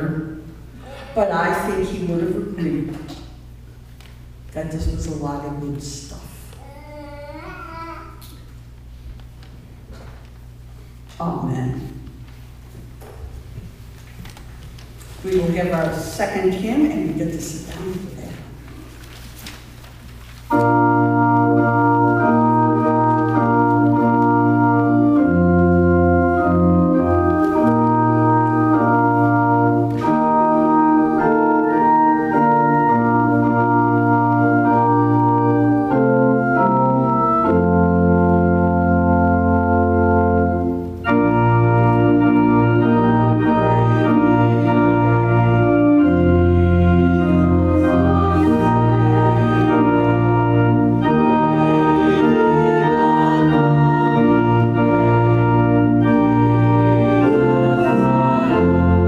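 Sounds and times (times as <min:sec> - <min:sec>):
organ playing a hymn: 0:13.9 - 0:59.0.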